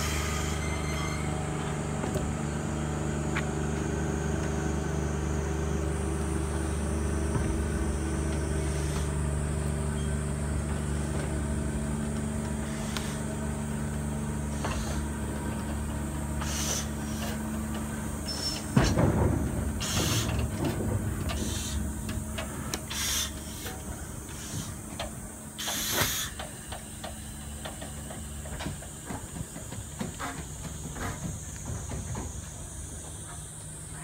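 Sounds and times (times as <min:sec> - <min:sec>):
low hum: 0:00.0 - 0:25.6
steam locomotive hissing: 0:00.0 - 0:34.0
loud thump: 0:18.7 - 0:21.4.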